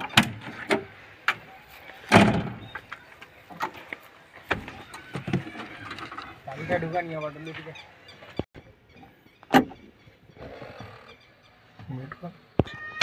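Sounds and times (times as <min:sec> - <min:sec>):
metal door opening with a clunk: 0:02.1 - 0:02.8.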